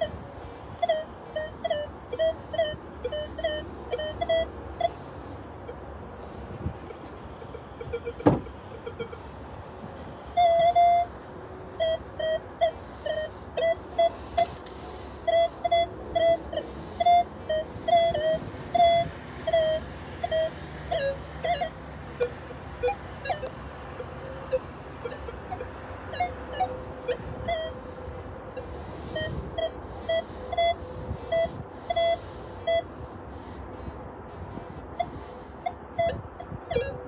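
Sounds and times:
metal detector beeps: 0:00.0 - 0:00.2, 0:00.8 - 0:23.6, 0:24.5 - 0:33.6, 0:34.4 - 0:37.0
sharp knock: 0:08.2 - 0:08.5.

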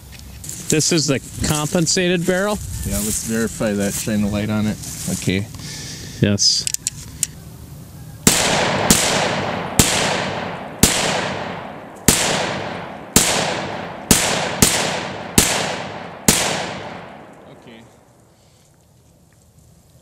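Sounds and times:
pistol shots echoing: 0:08.2 - 0:17.6.

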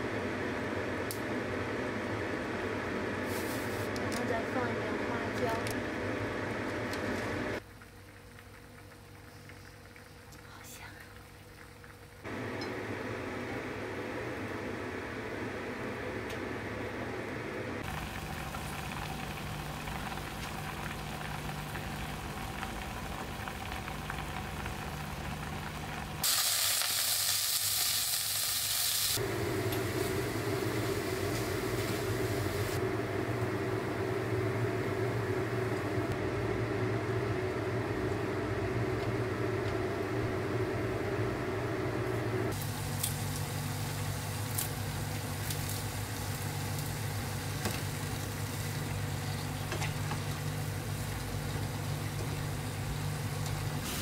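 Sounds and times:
food sizzling in a pan: 0:03.2 - 0:03.9, 0:17.8 - 0:32.9, 0:42.5 - 0:54.0
steady low hum: 0:08.6 - 0:26.2, 0:29.2 - 0:54.0.

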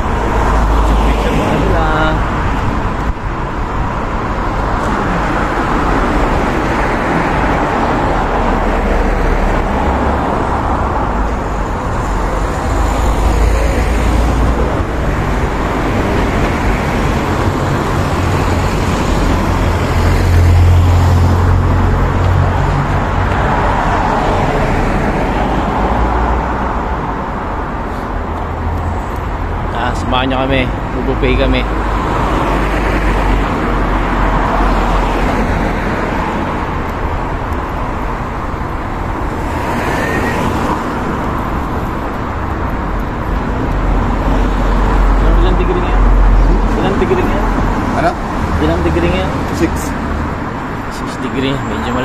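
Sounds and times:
cars passing close by: 0:00.0 - 0:52.0
road traffic rumble: 0:00.0 - 0:52.0.

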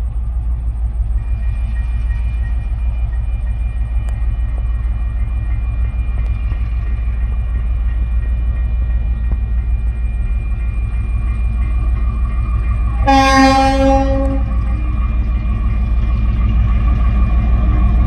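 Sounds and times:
diesel locomotive engine rumble: 0:00.0 - 0:18.0
locomotive horn chord: 0:13.0 - 0:14.7.

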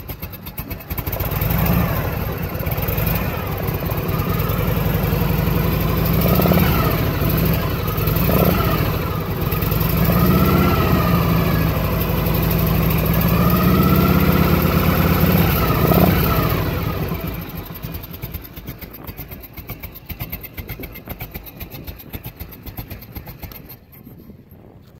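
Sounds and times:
motorcycle engine revving: 0:00.0 - 0:24.1.

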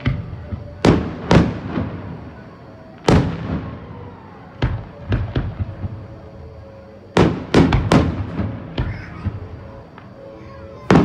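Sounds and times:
fireworks booming: 0:00.0 - 0:11.0
fireworks cracking: 0:00.0 - 0:11.0.

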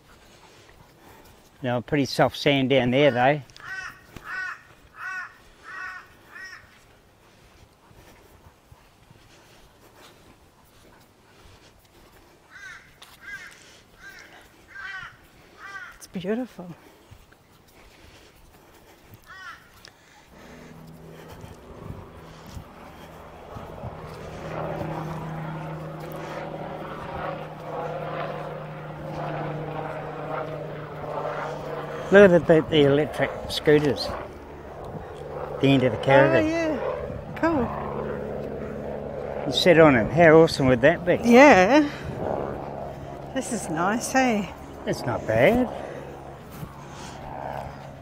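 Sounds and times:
crow cawing: 0:03.2 - 0:06.8, 0:12.5 - 0:16.0, 0:19.2 - 0:20.7
diesel engine droning: 0:20.3 - 0:36.1.

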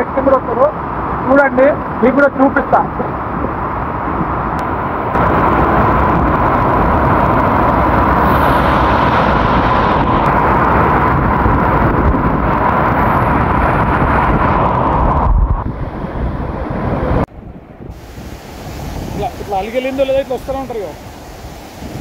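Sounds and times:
water rushing over boulders: 0:17.9 - 0:22.0.

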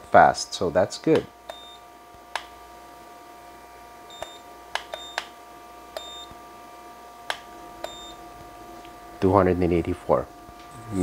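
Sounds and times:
grill fan hum: 0:00.0 - 0:11.0
thermometer clicking: 0:01.2 - 0:02.5, 0:04.1 - 0:05.3, 0:07.3 - 0:08.1
short high beeps: 0:06.0 - 0:06.3, 0:07.8 - 0:08.2.

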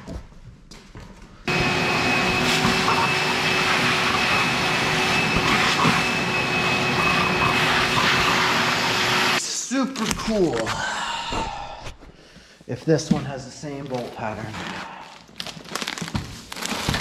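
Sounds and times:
shop vacuum whining: 0:01.5 - 0:09.4.

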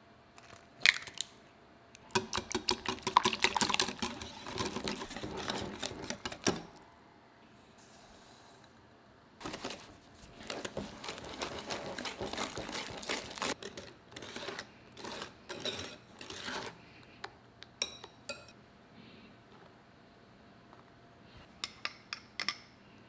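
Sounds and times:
whisk scratching against bowl: 0:03.7 - 0:06.6, 0:09.6 - 0:16.7.

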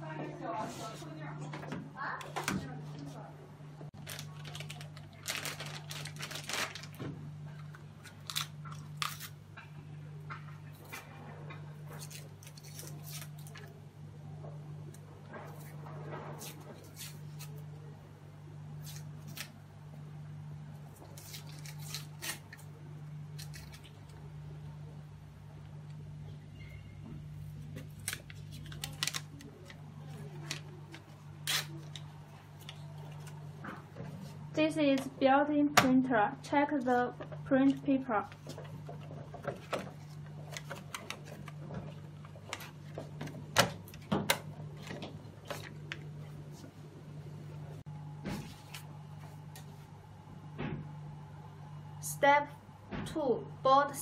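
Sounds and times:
low steady hum: 0:00.0 - 0:54.0
paper wrapper rustling: 0:04.0 - 0:07.0, 0:27.7 - 0:33.6
plastic bag crinkling: 0:04.0 - 0:07.0, 0:27.9 - 0:33.5.

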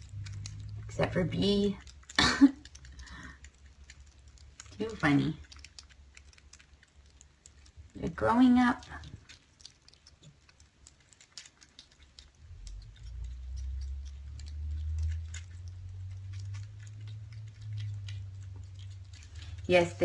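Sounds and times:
steady low rumble: 0:00.0 - 0:10.9, 0:11.8 - 0:20.0
kittens chewing and licking: 0:00.0 - 0:20.0.

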